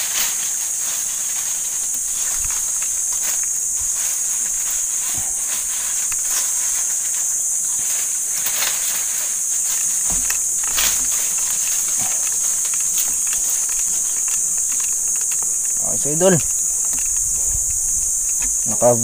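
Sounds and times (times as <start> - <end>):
high-pitched insect chorus: 0.0 - 19.0
soft rustles: 0.0 - 19.0.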